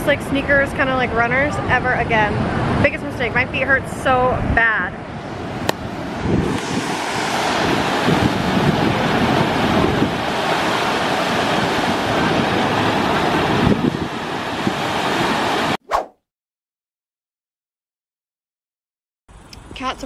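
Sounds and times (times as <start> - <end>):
wind rumbling on microphone: 0.0 - 15.8
white water rushing: 5.3 - 15.8.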